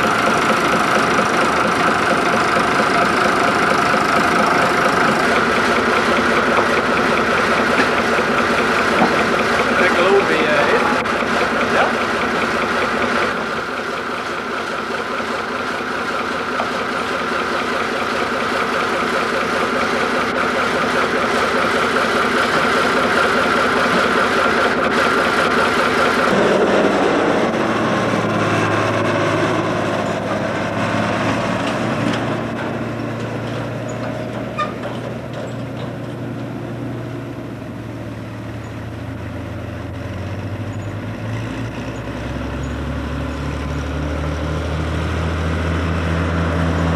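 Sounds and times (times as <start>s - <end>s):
tractor engines running: 0.0s - 46.9s.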